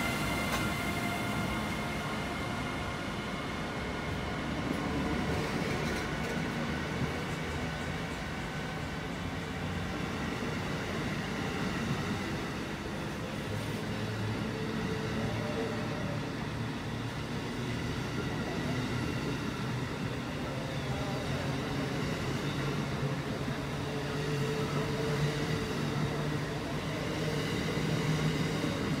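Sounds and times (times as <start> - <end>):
train wheels rumbling on rails: 0.0 - 29.0.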